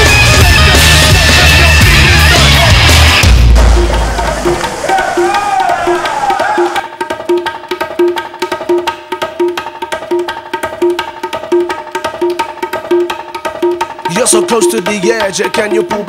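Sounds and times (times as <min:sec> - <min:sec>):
song with sung phrase: 0:00.0 - 0:06.8
steady percussive beat: 0:00.0 - 0:16.0.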